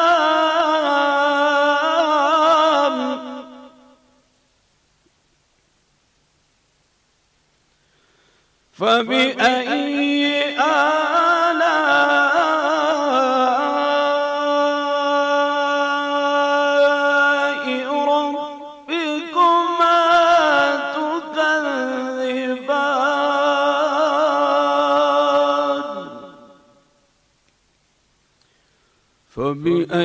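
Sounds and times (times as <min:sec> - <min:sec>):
man reciting melodically: 0:00.0 - 0:04.0, 0:08.7 - 0:26.9, 0:29.3 - 0:30.0.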